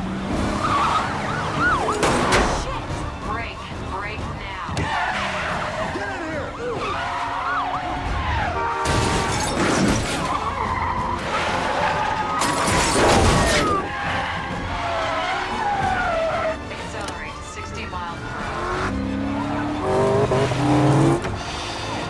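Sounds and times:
cars crashing: 0.0 - 3.4, 4.7 - 17.2
engines revving: 0.0 - 22.0
film score music: 0.0 - 22.0
tyres squealing: 4.6 - 8.5, 9.3 - 17.1.

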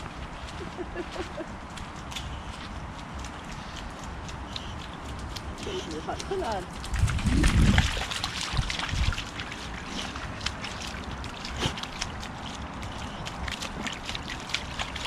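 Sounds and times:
water splashing in puddle: 0.0 - 15.0.

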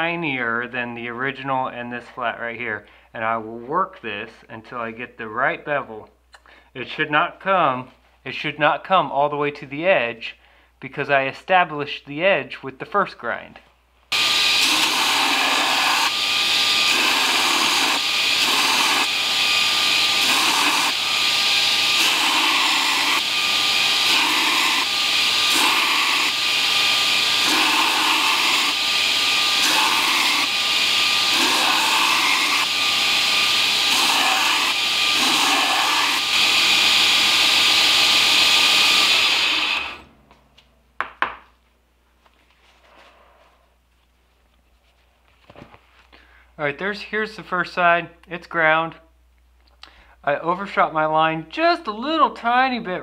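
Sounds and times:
belt grinder grinding steel blade: 14.1 - 40.1.

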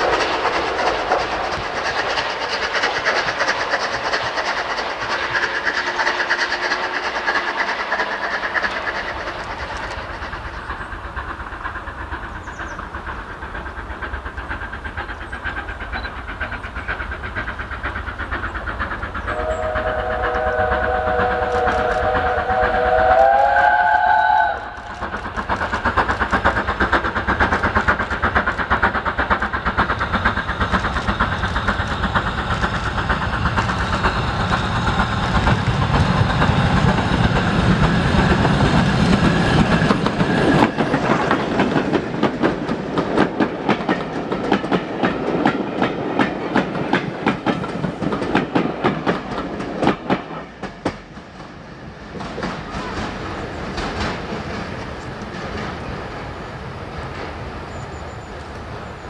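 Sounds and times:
steam locomotive exhaust: 0.0 - 59.0
steam locomotive whistle: 19.3 - 24.8.

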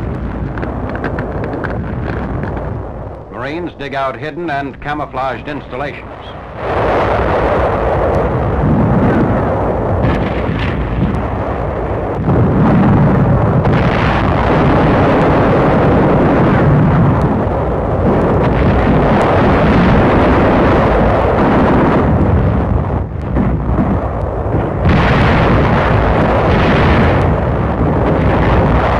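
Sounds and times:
explosions and artillery fire: 0.0 - 28.9
gunfire cracks: 10.0 - 11.5, 23.1 - 28.9.

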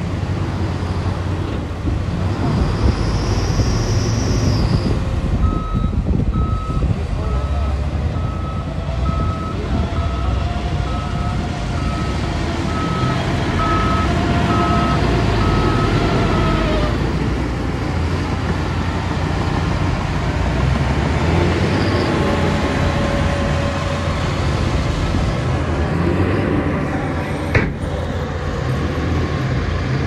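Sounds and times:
bulldozer pushing dirt: 0.0 - 30.0
heavy diesel engines running: 0.0 - 30.0
truck reversing beeper: 2.8 - 16.9.

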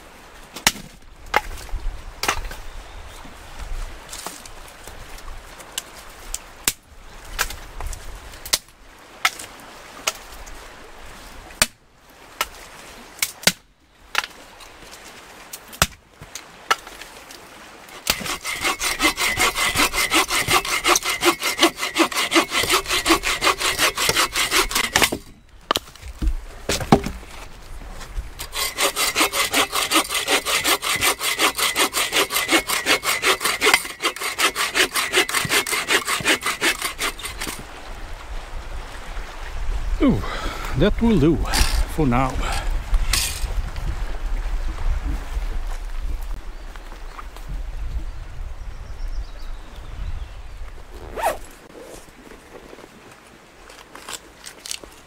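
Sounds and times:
hand saw cutting wood: 17.9 - 25.3, 28.4 - 37.6, 43.1 - 43.4
knocks of wood being handled: 18.0 - 27.5.

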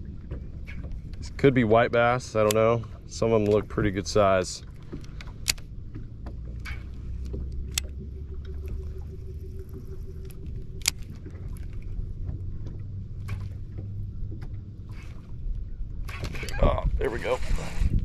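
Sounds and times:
faint steady hum: 0.0 - 17.8
low rumble of boat: 0.0 - 18.0
fishing reel clicks: 10.2 - 11.2.

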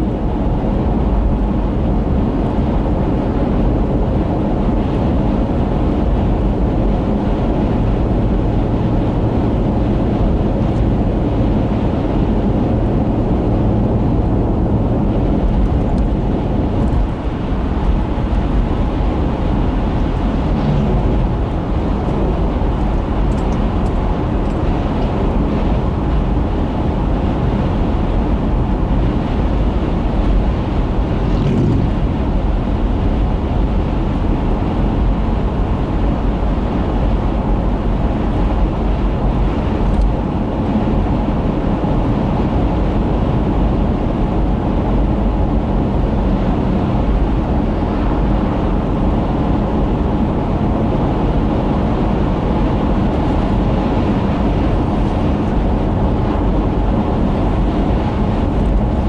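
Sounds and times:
car road noise from cabin: 0.0 - 59.0.

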